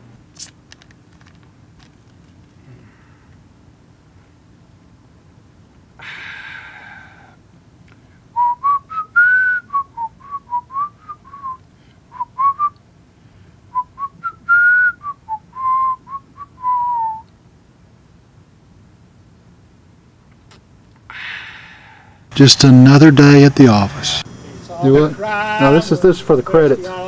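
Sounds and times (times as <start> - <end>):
breathy exhale: 2.6 - 3.4, 6.0 - 8.2, 21.1 - 22.3
man whistling a tune: 8.4 - 12.8, 13.7 - 17.3.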